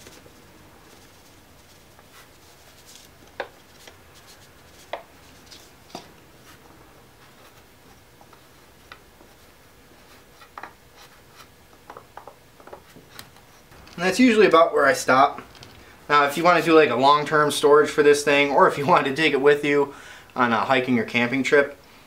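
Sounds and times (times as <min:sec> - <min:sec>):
sawdust rustling and scraping: 0:00.0 - 0:05.8.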